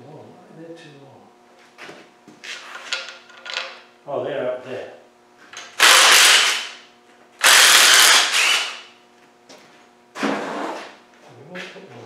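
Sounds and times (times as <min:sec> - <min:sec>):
cordless power driver whirring: 0:05.8 - 0:06.7, 0:07.4 - 0:08.9.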